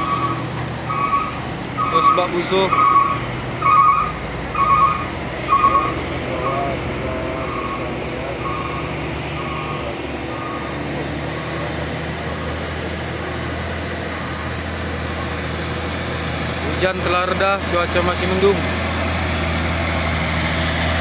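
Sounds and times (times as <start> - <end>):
reversing alarm beeping: 0.0 - 12.7
truck engine running: 0.0 - 21.0.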